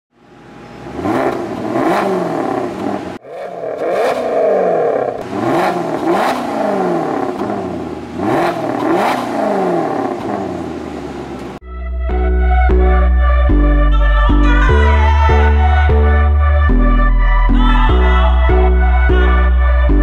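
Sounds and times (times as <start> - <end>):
car engine revving: 0.2 - 11.6.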